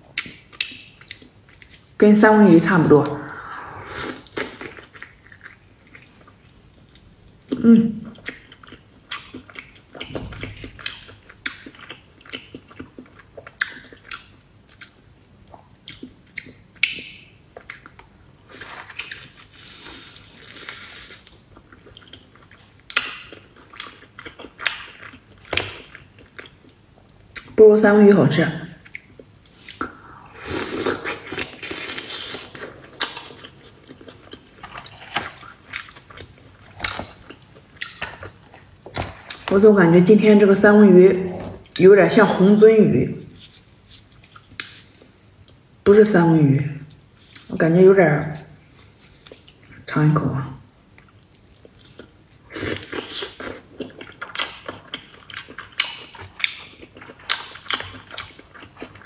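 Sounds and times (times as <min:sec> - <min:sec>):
chewing with smacks: 0:00.1 - 0:02.0, 0:04.7 - 0:27.6, 0:28.8 - 0:30.2, 0:30.8 - 0:39.6, 0:43.4 - 0:45.6, 0:48.4 - 0:49.8, 0:50.9 - 0:59.0.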